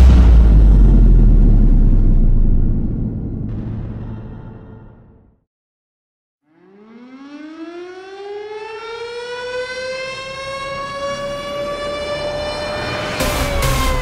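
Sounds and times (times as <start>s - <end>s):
siren winding up and wailing: 6.5s - 14.0s.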